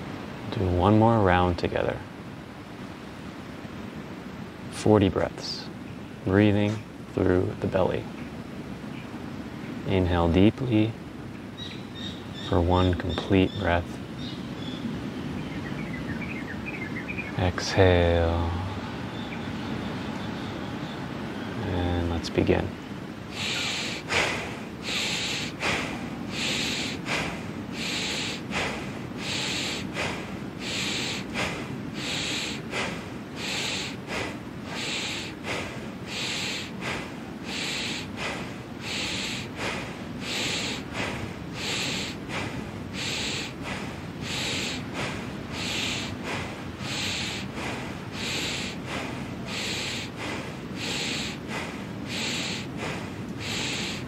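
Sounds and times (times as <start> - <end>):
forceful breathing through nose: 23.2 - 54.0.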